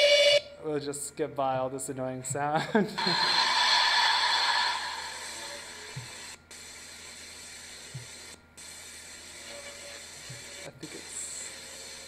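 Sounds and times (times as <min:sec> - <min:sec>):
radio static hiss: 0:03.0 - 0:12.0.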